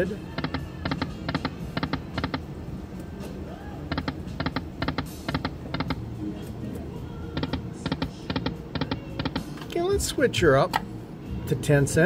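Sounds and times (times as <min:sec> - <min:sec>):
slot machine electronic clicks: 0:00.0 - 0:02.5, 0:03.9 - 0:06.0, 0:07.3 - 0:09.5.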